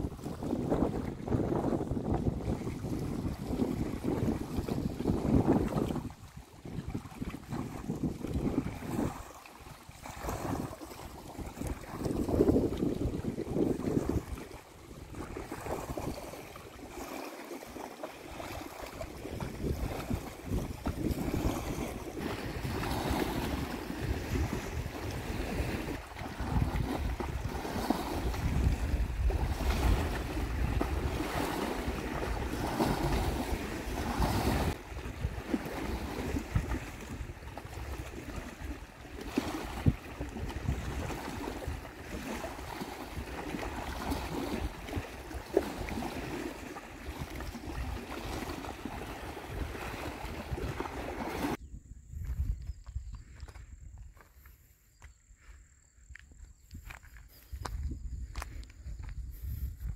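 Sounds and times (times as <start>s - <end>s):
wind gusting on microphone: 0.0s - 17.1s, 18.3s - 54.6s, 56.1s - 59.9s
water lapping at rocky shore: 0.0s - 51.6s.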